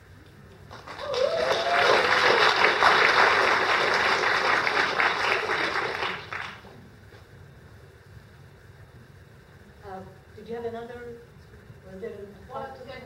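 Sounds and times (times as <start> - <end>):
audience applauding: 0.7 - 6.7.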